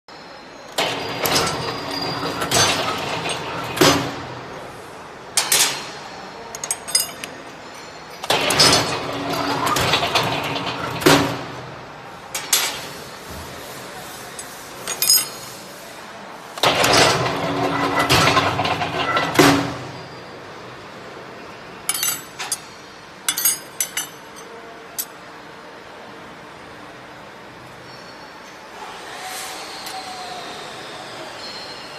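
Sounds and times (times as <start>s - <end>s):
steel rods clinking: 6.5s - 8.3s, 14.4s - 15.5s, 21.9s - 25.1s
sharp metal clank: 21.9s - 24.5s.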